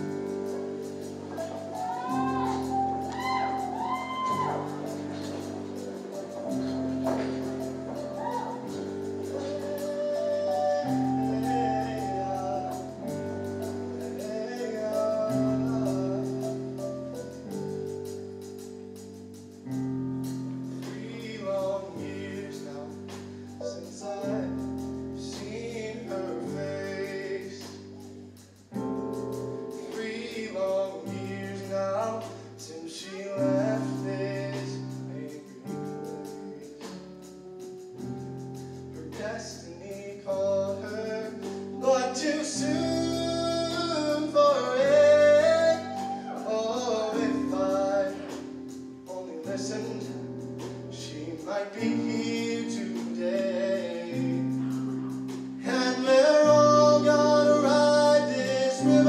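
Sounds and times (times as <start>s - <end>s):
choir singing slow song: 0.0s - 16.6s
live band accompaniment: 0.0s - 59.0s.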